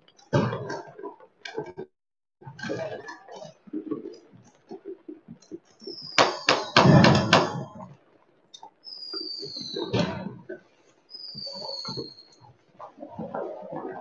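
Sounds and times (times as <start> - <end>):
descending firework whistle: 5.8 - 7.7, 8.8 - 10.3, 11.1 - 12.4
fireworks bangs: 5.8 - 8.0
firecracker pops: 6.1 - 7.7.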